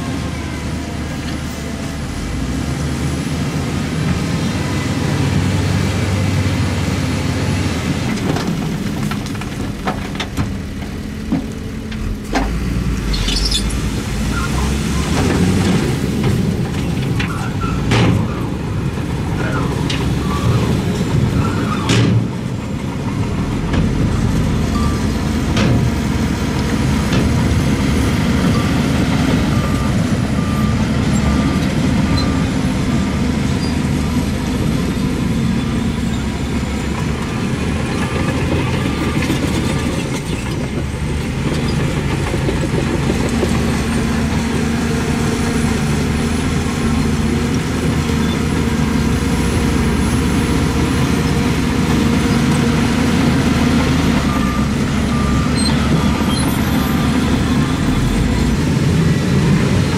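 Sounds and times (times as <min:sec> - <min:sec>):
diesel earthmoving machinery: 0:00.0 - 0:59.9
reversing alarm beeping: 0:53.8 - 0:58.4.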